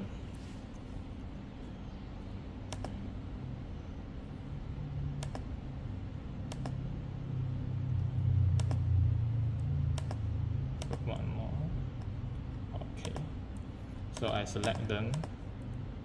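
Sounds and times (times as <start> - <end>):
low steady hum: 0.0 - 16.0
computer mouse clicks: 2.7 - 3.0, 5.2 - 5.5, 6.5 - 6.8, 8.5 - 8.8, 9.6 - 11.2, 13.0 - 15.7.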